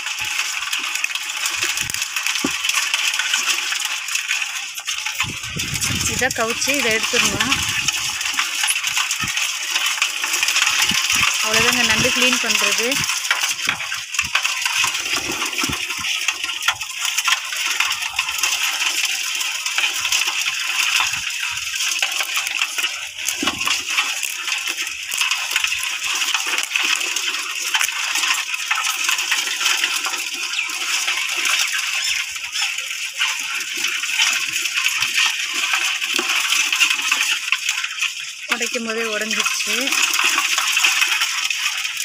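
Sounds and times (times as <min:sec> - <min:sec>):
crabs clicking and scratching on metal: 0:00.0 - 0:42.0.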